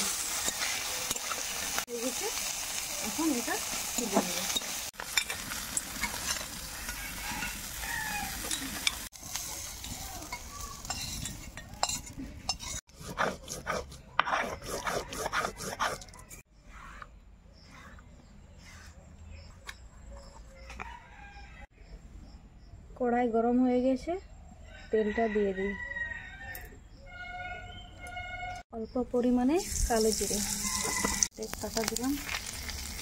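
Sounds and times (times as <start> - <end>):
stone roller grinding spices: 2.7 - 19.0, 29.6 - 33.0
scraping paste on stone: 10.8 - 20.5.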